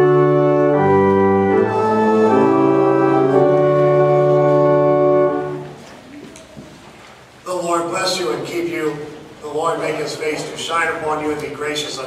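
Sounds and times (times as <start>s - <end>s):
church organ chords: 0.0s - 5.8s.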